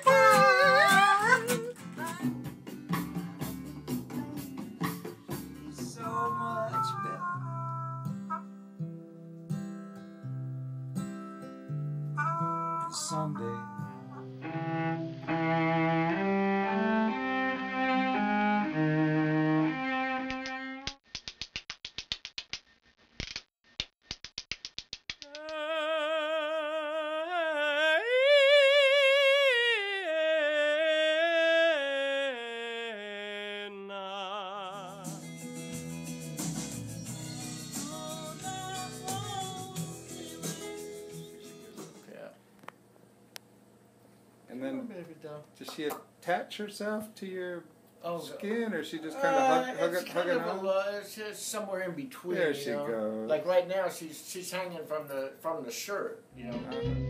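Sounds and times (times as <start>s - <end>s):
singer with wide vibrato: 0.0s - 1.7s, 25.4s - 35.2s
sustained instrumental notes: 12.2s - 20.7s.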